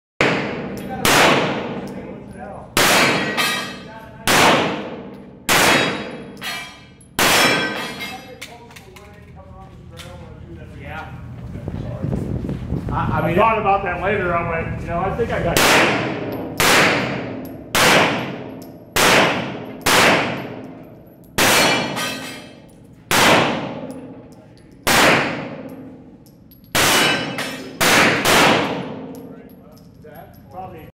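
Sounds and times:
pistol shots echoing indoors: 0.2s - 2.0s, 2.8s - 8.1s, 15.6s - 29.3s.

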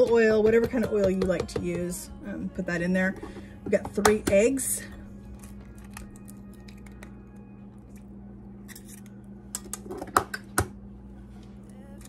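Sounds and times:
eggshell tapping on metal bowl: 0.0s - 1.8s
steady low hum: 0.0s - 12.0s.

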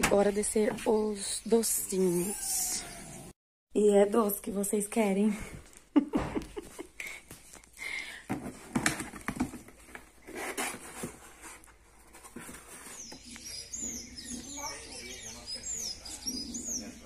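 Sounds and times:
cardboard boxes being handled: 8.2s - 14.6s.

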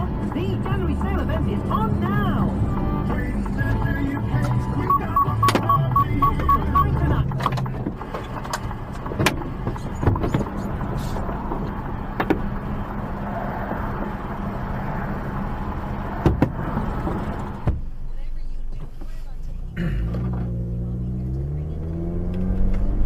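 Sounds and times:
truck engine humming: 0.0s - 17.7s
rapid electronic beeping: 4.8s - 7.2s.

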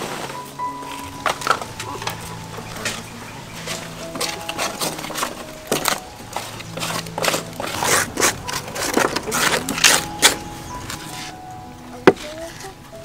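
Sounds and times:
scraping ash in metal drum: 0.9s - 11.4s.

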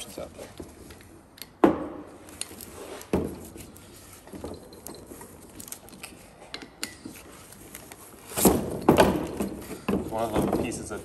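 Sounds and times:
tools clicking and tapping: 0.9s - 2.6s, 4.3s - 8.0s.

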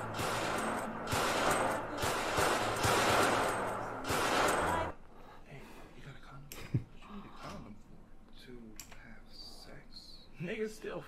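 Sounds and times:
rapid handgun gunfire: 0.0s - 5.0s.

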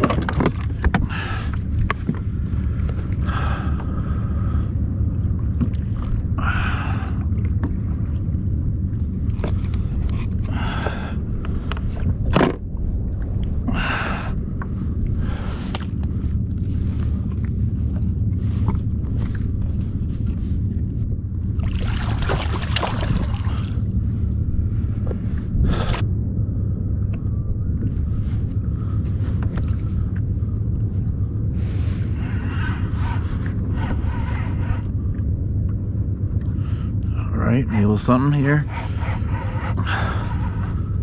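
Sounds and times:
wind and sea water rumble: 0.0s - 41.0s
water splashing: 21.6s - 23.9s.

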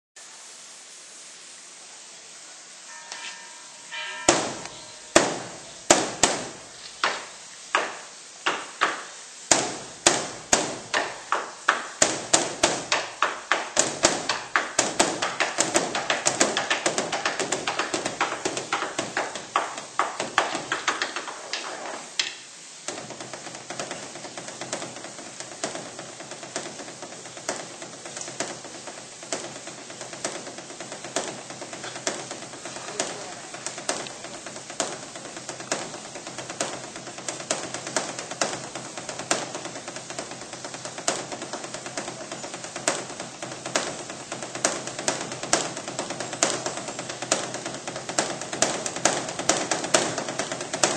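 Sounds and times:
temple drum beaten with sticks: 3.9s - 21.4s, 22.9s - 50.9s.

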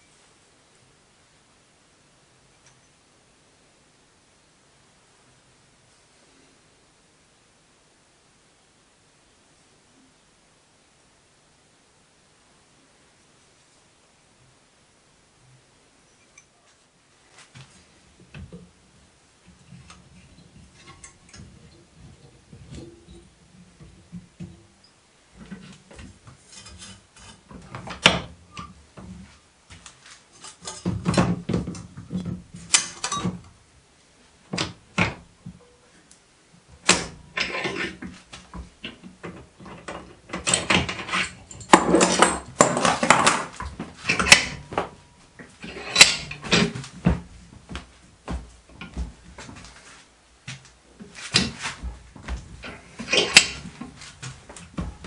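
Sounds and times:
metal scraping: 26.4s - 27.5s, 36.8s - 38.1s, 39.8s - 46.9s, 51.0s - 55.0s
metal clanks: 36.8s - 47.3s, 51.2s - 55.0s.

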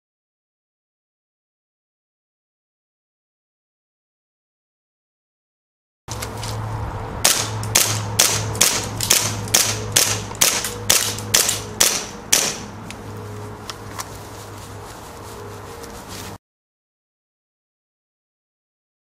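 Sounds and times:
airsoft pistol shots: 7.2s - 12.7s.

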